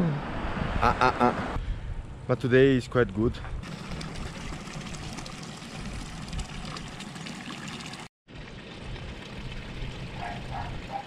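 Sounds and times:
water running into stone trough: 3.6 - 11.0.

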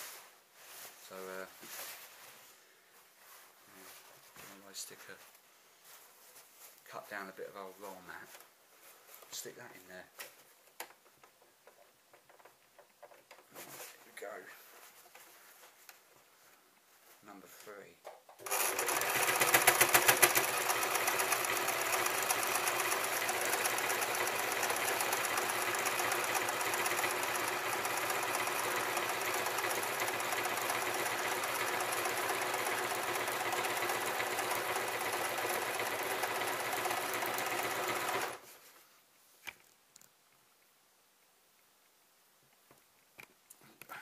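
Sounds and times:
sewing machine running: 18.4 - 38.4.

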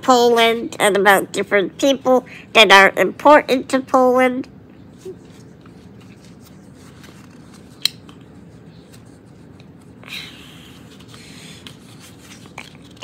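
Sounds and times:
faint room noise: 0.0 - 13.0
paper rustle: 5.0 - 10.0, 10.6 - 13.0.

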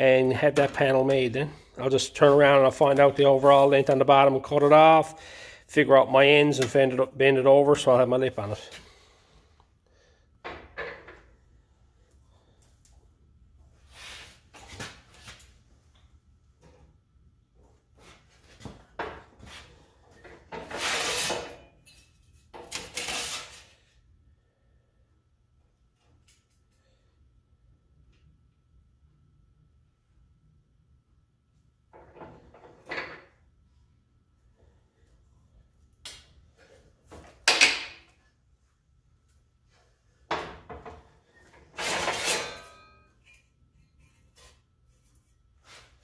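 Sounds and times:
sheet steel scraping on metal: 20.6 - 21.7, 41.7 - 43.4.

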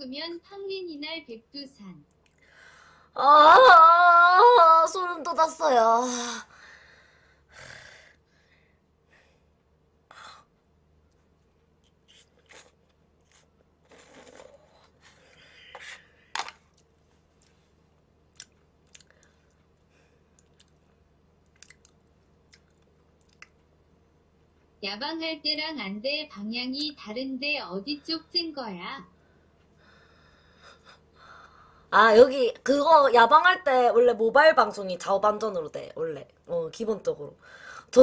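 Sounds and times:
chewing: 18.3 - 23.7
mouth clicks and smacks: 18.3 - 23.8.

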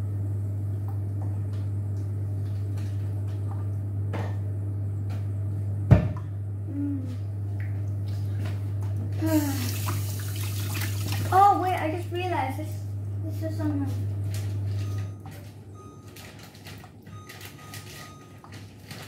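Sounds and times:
steady low hum: 0.0 - 19.0
water running from kitchen tap: 9.0 - 12.5.

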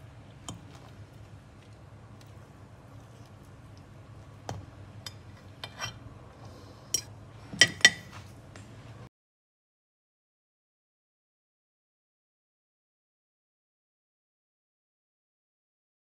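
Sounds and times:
faint steady hum: 0.0 - 9.1
fork scraping glass container: 5.4 - 6.0.

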